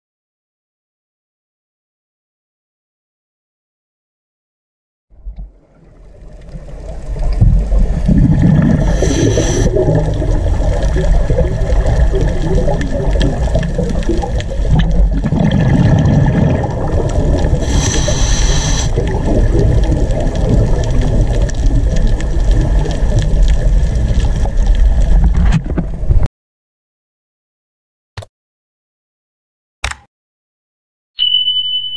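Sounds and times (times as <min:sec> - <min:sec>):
underwater rumble: 0:05.1 - 0:26.3
gurgling bubbles: 0:05.2 - 0:26.2
regulator breath hiss: 0:08.8 - 0:09.7, 0:17.6 - 0:19.0.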